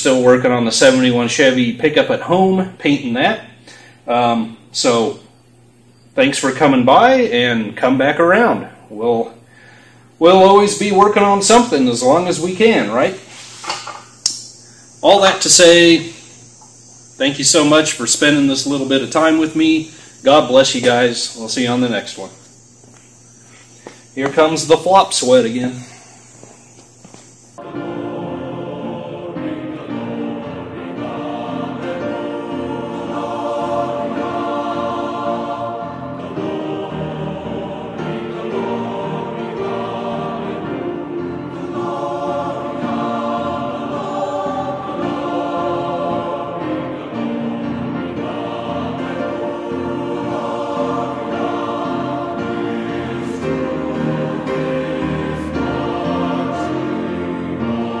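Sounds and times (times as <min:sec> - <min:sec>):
choir singing: 0:10.2 - 0:13.3, 0:15.0 - 0:23.2, 0:24.1 - 0:26.4, 0:27.6 - 0:58.0.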